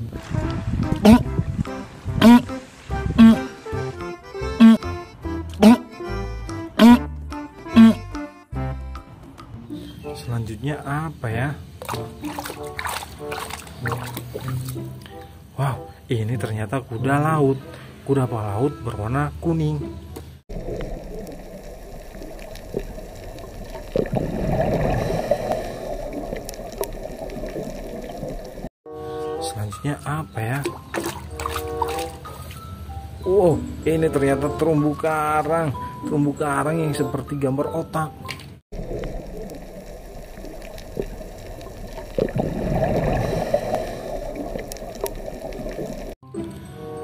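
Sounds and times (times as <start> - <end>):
aquarium water bubbling: 11.8 - 14.8, 20.5 - 28.7, 38.7 - 46.2.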